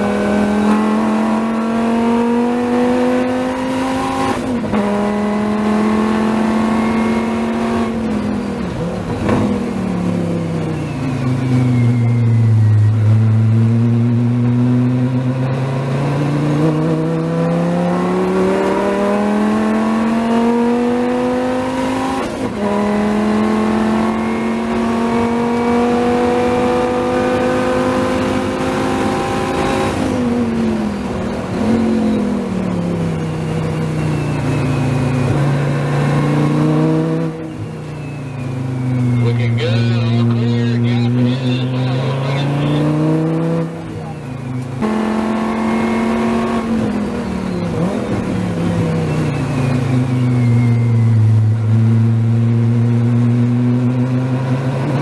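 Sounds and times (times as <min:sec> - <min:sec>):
race car engine revving: 0:00.0 - 0:37.6, 0:38.4 - 0:55.0.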